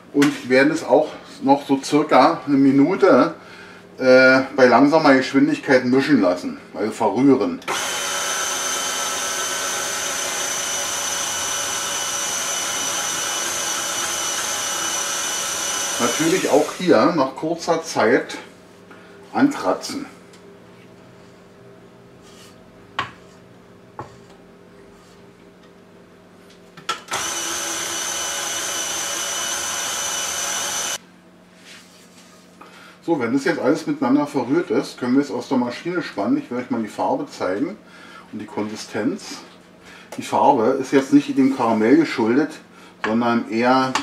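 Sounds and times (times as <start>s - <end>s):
stand mixer motor hum: 7.7s - 17.1s, 27.0s - 31.0s
beater mixing batter: 7.7s - 17.3s, 27.0s - 31.0s.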